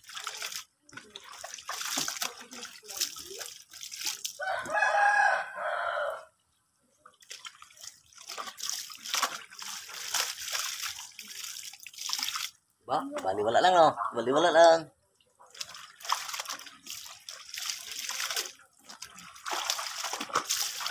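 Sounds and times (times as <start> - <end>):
hose water splashing into basin: 0.0 - 4.5, 7.2 - 12.6, 15.5 - 20.9
rooster crowing: 4.4 - 6.4
laundry scrubbed by hand: 15.6 - 20.9.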